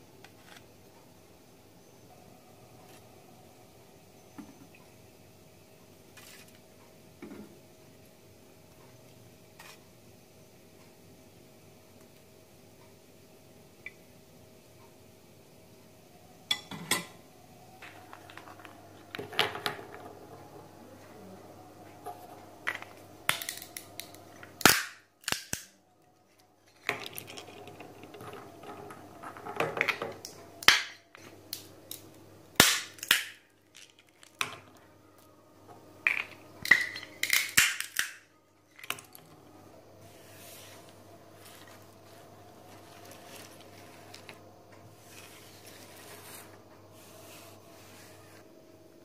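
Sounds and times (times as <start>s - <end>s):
walnut shells cracking: 22.6s - 25.8s, 26.7s - 34.7s, 36.0s - 39.2s.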